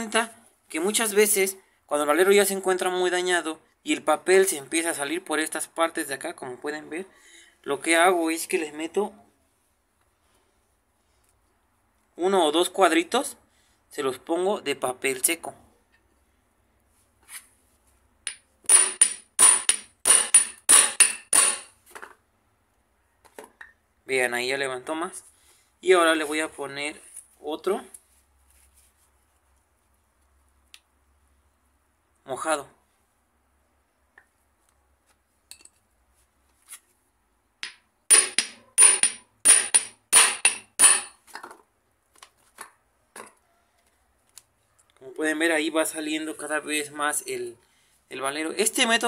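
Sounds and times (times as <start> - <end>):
hammer striking metal shaft: 18.3 - 21.7, 37.6 - 41.2.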